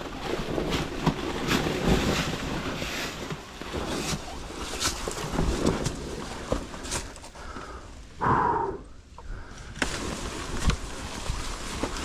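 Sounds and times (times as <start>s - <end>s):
motorcycle riding on trail: 9.4s - 12.0s.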